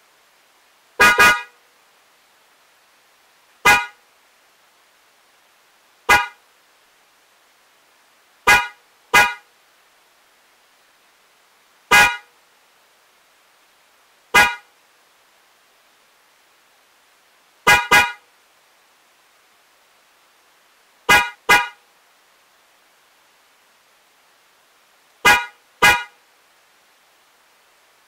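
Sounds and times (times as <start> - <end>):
electric car horn toots: 1.0 - 1.6, 3.6 - 4.0, 6.1 - 6.4, 8.5 - 9.4, 11.9 - 12.3, 14.4 - 14.7, 17.7 - 18.2, 21.1 - 21.8, 25.2 - 26.2.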